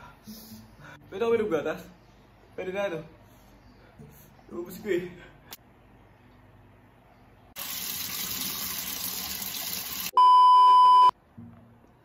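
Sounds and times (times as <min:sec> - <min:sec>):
test-tone beep: 0:10.2 - 0:11.1.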